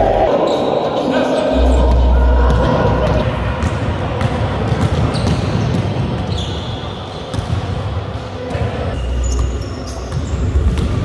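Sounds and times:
sneaker squeaks: 0:04.7 - 0:07.6, 0:08.5 - 0:11.0.

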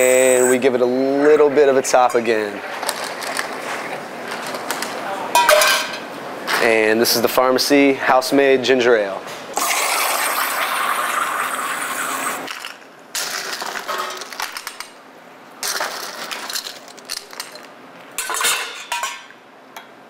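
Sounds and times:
glass and ice clinking: 0:05.4 - 0:06.0.

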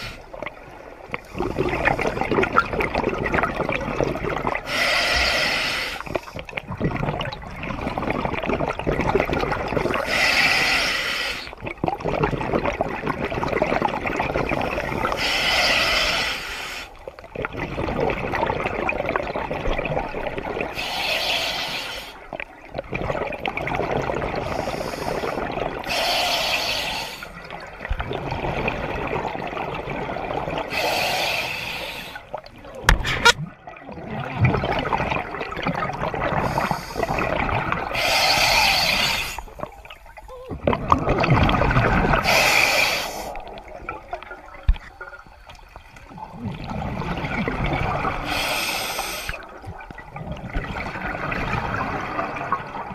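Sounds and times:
bubbling exhale: 0:01.2 - 0:07.3, 0:34.3 - 0:43.8, 0:46.1 - 0:52.9
regulator breathing inhale hiss: 0:04.7 - 0:06.4, 0:10.0 - 0:11.5, 0:15.2 - 0:16.9, 0:20.8 - 0:22.2, 0:24.5 - 0:27.4, 0:30.7 - 0:32.3, 0:36.4 - 0:37.2, 0:37.9 - 0:39.6, 0:42.2 - 0:43.4, 0:48.2 - 0:49.5.

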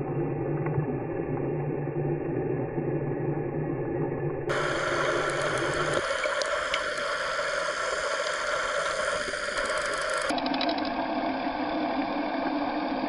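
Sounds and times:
muffled underwater water rush: 0:00.0 - 0:13.0
faint clicks: 0:04.5 - 0:10.9.

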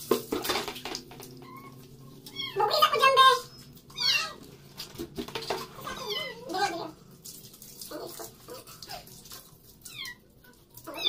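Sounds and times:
kitten meowing: 0:01.4 - 0:04.4.

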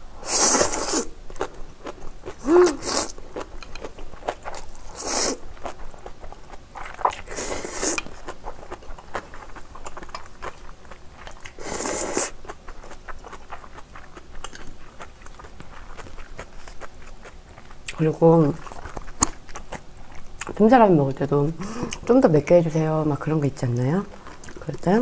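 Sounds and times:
slurping noodles: 0:00.2 - 0:01.1, 0:07.2 - 0:08.1, 0:11.6 - 0:12.4
wet chewing clicks: 0:12.5 - 0:20.6.

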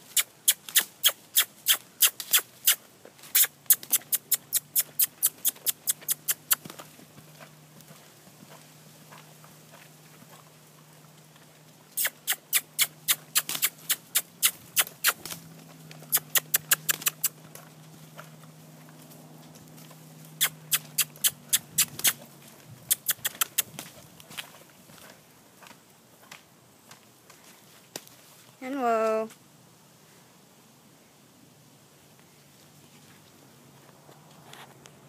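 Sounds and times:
person clucking tongue: 0:12.0 - 0:15.2, 0:16.1 - 0:17.3, 0:20.4 - 0:22.2.

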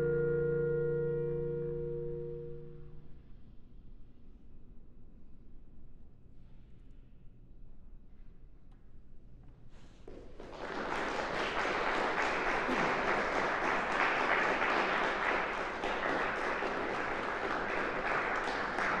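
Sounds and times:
audience applauding: 0:10.1 - 0:19.0.

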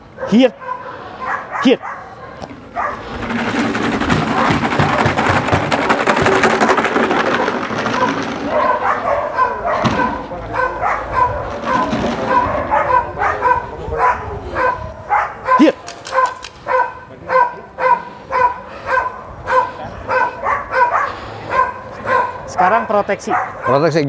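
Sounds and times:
stones rattling in plastic bottles: 0:03.0 - 0:08.7.

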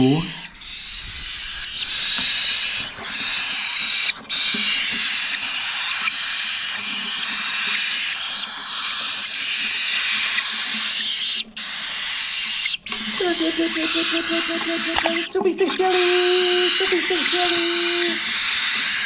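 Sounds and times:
cockatiel chicks hissing begging calls: 0:08.0 - 0:13.2.

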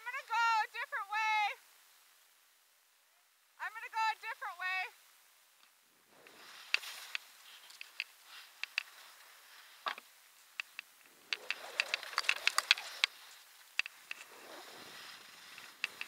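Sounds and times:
skis scraping over snow: 0:06.1 - 0:10.0, 0:11.1 - 0:16.0
sharp clicks and taps: 0:07.8 - 0:08.9, 0:09.9 - 0:13.2.

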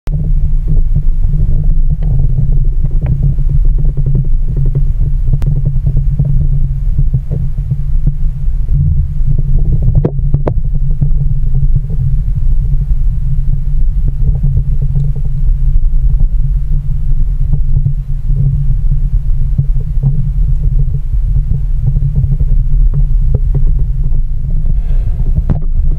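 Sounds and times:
muffled underwater rumble: 0:00.1 - 0:25.9
faint clicks and knocks: 0:00.9 - 0:08.2.

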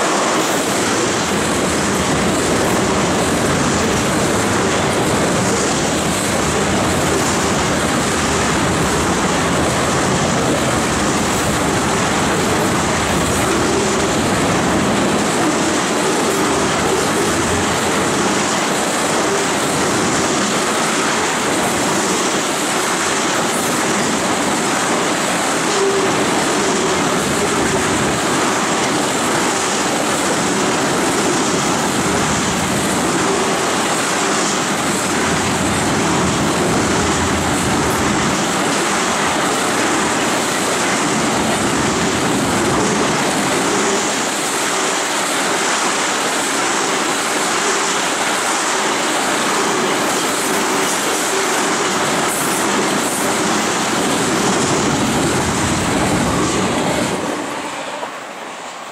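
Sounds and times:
train wheels on rails: 0:00.0 - 0:58.9.

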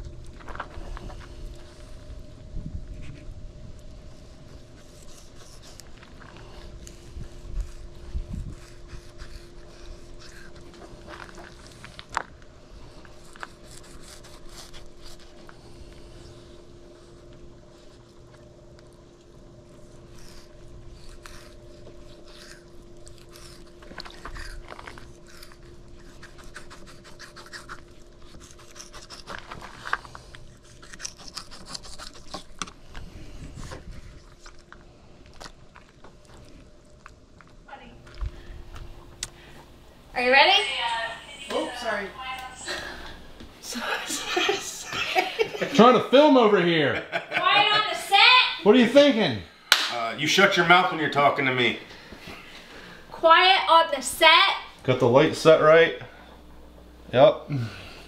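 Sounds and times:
low hum: 0:00.0 - 0:46.3.

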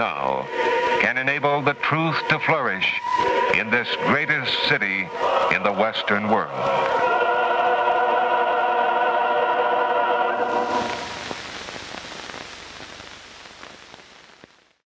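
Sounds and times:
closing music held chord: 0:00.0 - 0:11.2
old film soundtrack hiss: 0:00.0 - 0:14.8.

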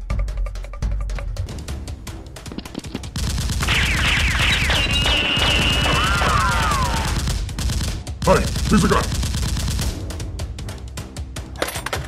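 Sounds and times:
action film music: 0:00.0 - 0:12.0
machine-gun fire: 0:03.1 - 0:10.2.

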